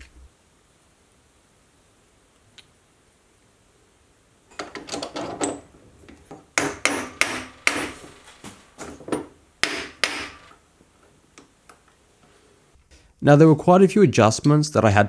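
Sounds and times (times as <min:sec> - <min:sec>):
sharp metal knocks and clunks: 0:04.5 - 0:10.5.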